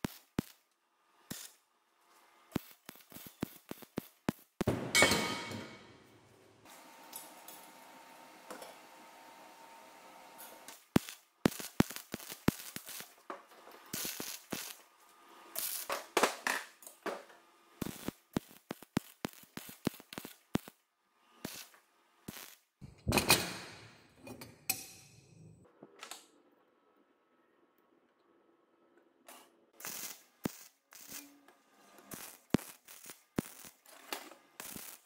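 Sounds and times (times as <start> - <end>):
welder crackling and popping: 0.0 - 5.0, 6.6 - 7.9, 10.4 - 24.1, 29.3 - 35.0.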